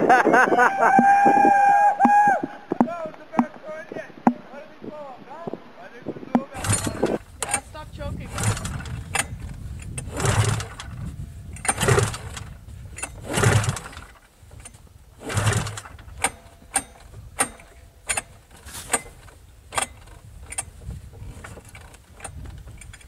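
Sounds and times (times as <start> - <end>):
sharp clicks: 0.9 - 20.7
snowmobile engine cranking: 6.4 - 23.0.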